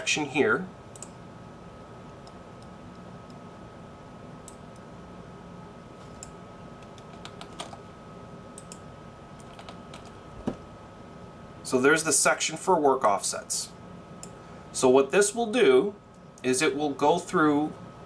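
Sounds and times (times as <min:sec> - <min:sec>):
faint hum with high tone: 0:00.0 - 0:18.0
computer keyboard keystrokes: 0:06.2 - 0:07.8, 0:09.4 - 0:10.2.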